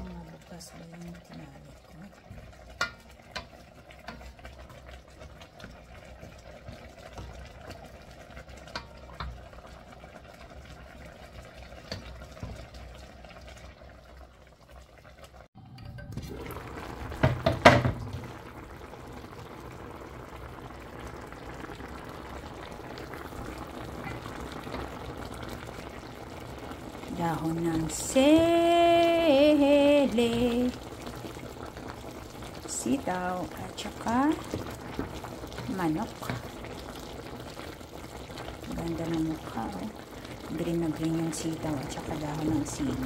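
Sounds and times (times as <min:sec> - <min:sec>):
broth simmering and bubbling: 0:00.0 - 0:43.0
spatula tapping pan: 0:02.7 - 0:04.4.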